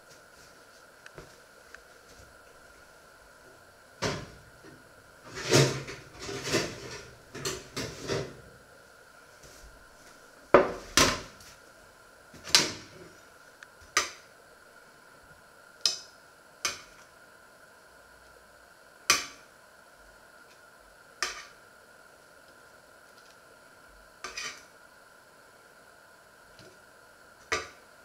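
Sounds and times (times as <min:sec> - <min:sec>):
baking tray knocking on worktop: 0:10.6 - 0:11.2.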